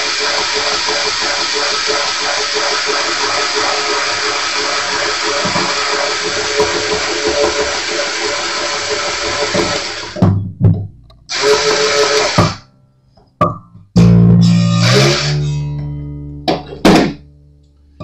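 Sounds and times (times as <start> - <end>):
guitar string ringing rising pitch: 14.0 - 18.0.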